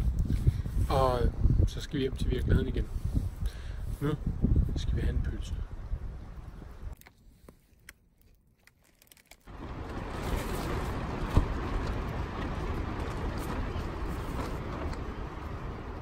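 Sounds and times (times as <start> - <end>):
wind buffeting a tent: 0.0 - 7.0, 9.5 - 16.0
tent walls rustling: 6.9 - 16.0.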